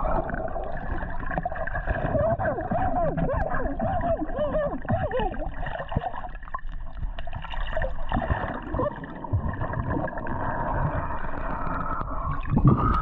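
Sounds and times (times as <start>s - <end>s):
underwater water gurgling: 0.0s - 13.0s.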